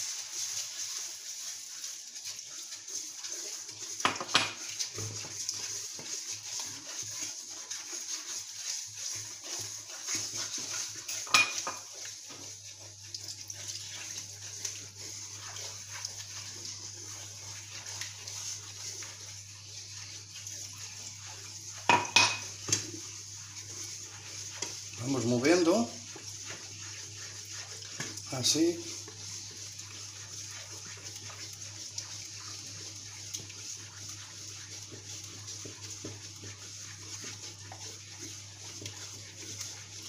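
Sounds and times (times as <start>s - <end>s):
sizzling hiss from hot pan: 0.0s - 40.0s
wooden spoon scraping a pan: 0.0s - 40.0s
spoon knocking against pan: 4.0s - 4.6s, 21.9s - 22.8s.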